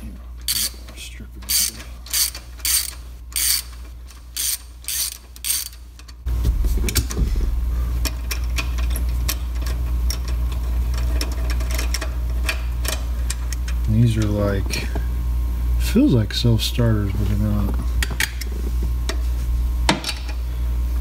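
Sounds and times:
steady low hum: 0.0s - 21.0s
socket ratchet wrench clicking: 0.5s - 0.7s, 1.5s - 3.8s, 4.4s - 6.1s.

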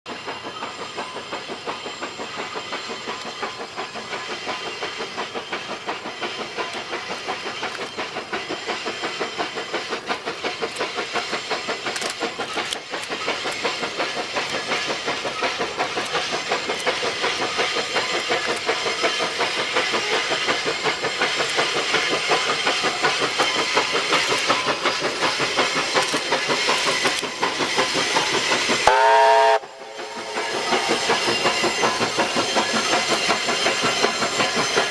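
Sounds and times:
steam locomotive exhaust beating: 0.1s - 34.9s.

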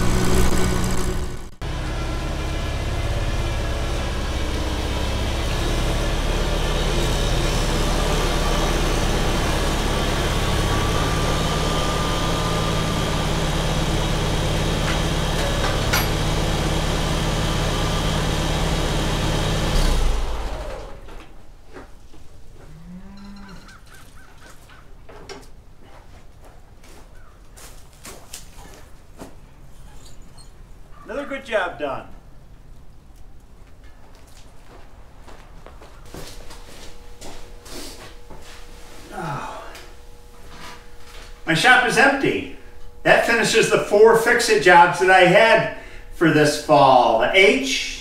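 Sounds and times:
tractor engine running: 0.0s - 21.4s, 36.0s - 48.0s
short squeak: 29.7s - 30.6s.

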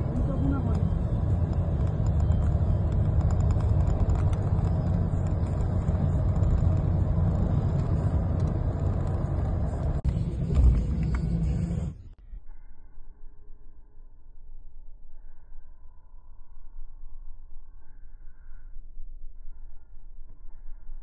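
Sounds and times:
car road noise rumble: 0.0s - 12.2s.

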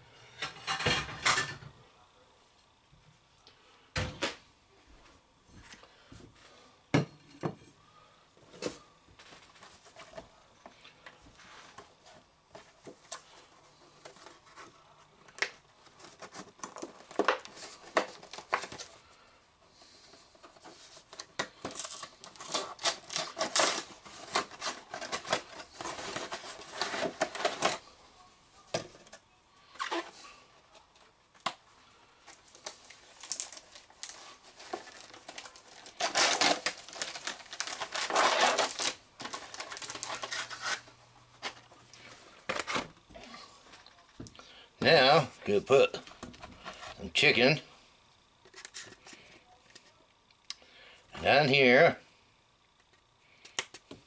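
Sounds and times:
box and plastic bag rustling: 11.3s - 19.2s, 19.8s - 28.0s, 32.3s - 44.2s.

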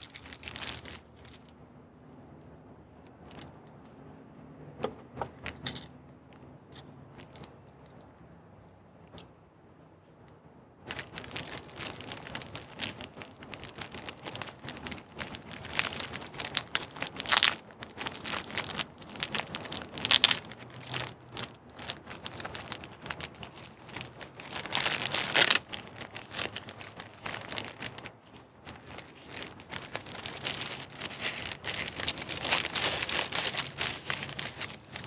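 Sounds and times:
plastic packaging crinkling: 0.0s - 1.5s, 6.7s - 8.0s, 10.9s - 35.0s.

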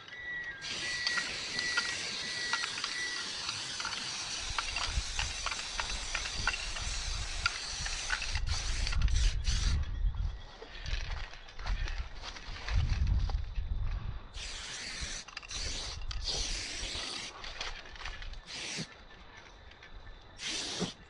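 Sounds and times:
spray paint can hissing: 0.6s - 9.8s, 14.4s - 17.4s, 18.5s - 18.9s, 20.4s - 21.0s.

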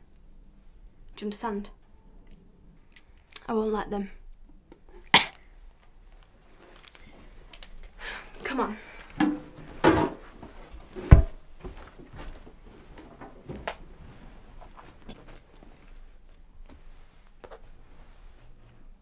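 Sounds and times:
heavy thump: 11.0s - 11.8s.

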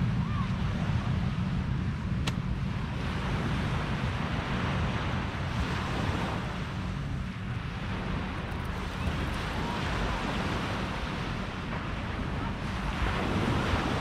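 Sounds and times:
wind buffeting microphone: 0.0s - 14.0s
small waves breaking on sand: 2.9s - 14.0s.

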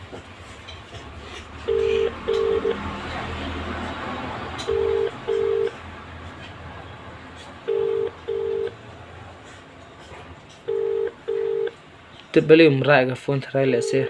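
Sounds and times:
telephone ringback tone: 1.6s - 2.8s, 4.6s - 5.7s, 7.7s - 8.8s, 10.6s - 11.8s, 13.8s - 14.0s.

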